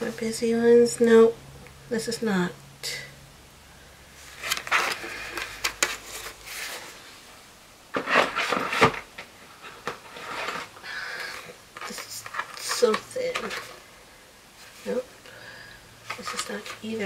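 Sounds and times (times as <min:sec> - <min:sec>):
sticker sheets rustling: 0:04.2 - 0:07.0, 0:07.9 - 0:13.8, 0:16.0 - 0:17.0.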